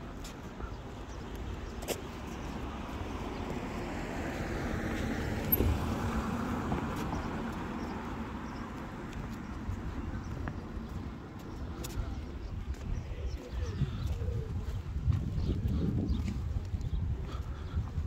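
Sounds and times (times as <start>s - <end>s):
car passing: 2.2s - 11.6s.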